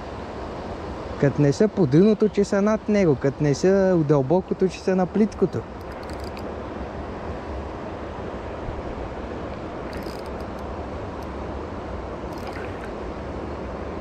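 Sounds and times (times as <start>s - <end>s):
flowing river water: 0.0s - 14.0s
faint clicks: 5.8s - 6.5s, 9.5s - 11.3s, 12.3s - 12.9s.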